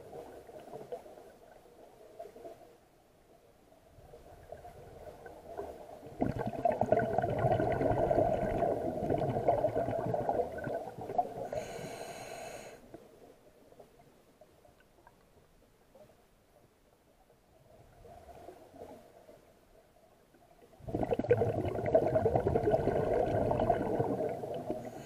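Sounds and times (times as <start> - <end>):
crackling exhaust bubbles underwater: 4.2 - 12.7, 20.7 - 25.0.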